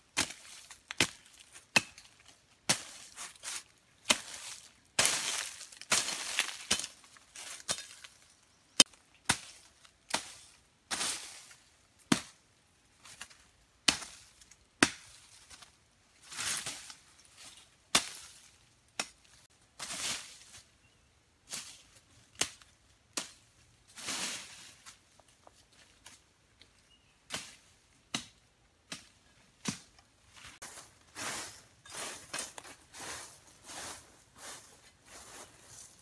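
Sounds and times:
rustling leaves and stems: 0.0 - 12.3, 12.9 - 28.1, 28.9 - 36.0
blade chopping saplings: 0.2 - 3.2, 5.0 - 8.1, 14.8 - 15.7, 27.3 - 30.0.

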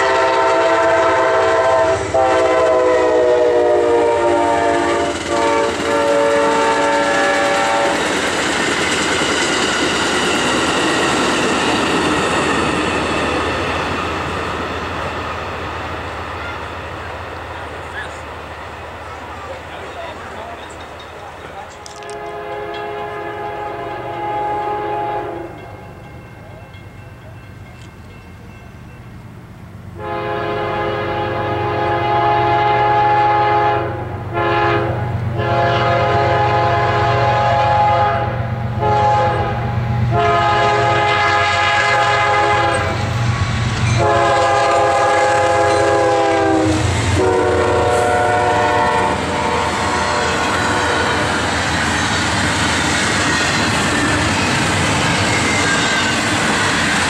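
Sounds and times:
locomotive horn blasts: 0.0 - 8.0, 21.8 - 25.8, 30.0 - 43.1, 44.0 - 51.5
freight cars rumbling and clattering: 8.0 - 22.2.

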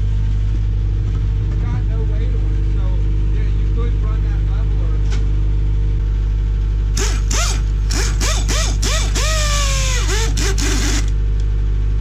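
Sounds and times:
skid steer engine running: 0.0 - 12.0
pneumatic wrench bursts: 6.9 - 11.2.

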